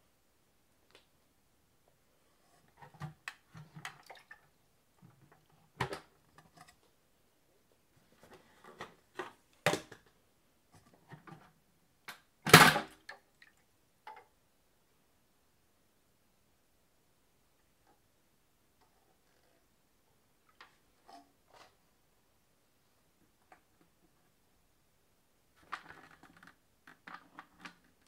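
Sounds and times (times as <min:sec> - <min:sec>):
plastic parts knocking and clicking: 0:25.6 - 0:28.0.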